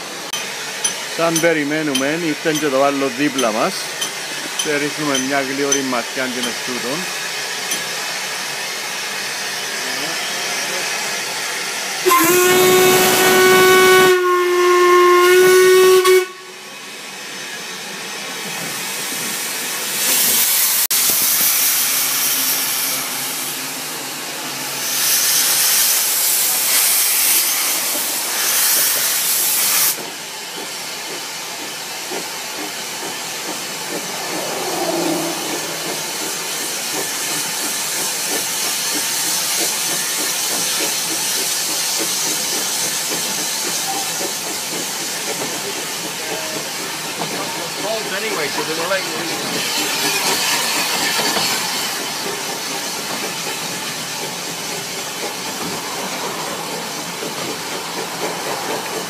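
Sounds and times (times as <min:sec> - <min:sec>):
steam hissing: 0:00.0 - 0:59.0
steam locomotive whistle: 0:12.0 - 0:16.8.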